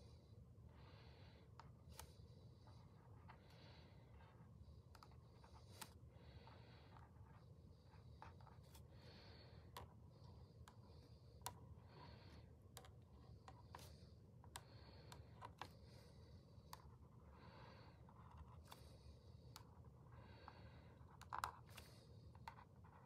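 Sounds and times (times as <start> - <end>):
marker scratching on paper: 4.1 - 8.8.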